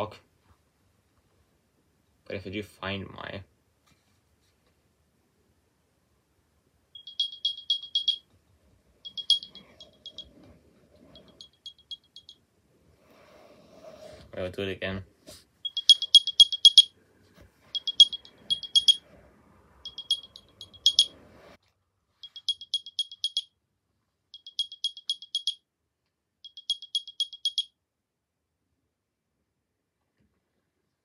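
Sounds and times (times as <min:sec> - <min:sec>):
high electronic chirps: 0:07.0 - 0:08.2, 0:09.1 - 0:10.3, 0:15.7 - 0:16.9, 0:17.8 - 0:19.0, 0:19.8 - 0:21.1, 0:22.2 - 0:23.5, 0:24.4 - 0:25.6, 0:26.5 - 0:27.7.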